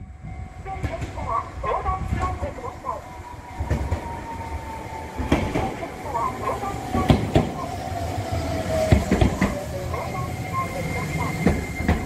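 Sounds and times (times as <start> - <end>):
tram wheels clacking over rail joints: 0.7 - 2.6, 3.5 - 4.2, 5.0 - 12.0.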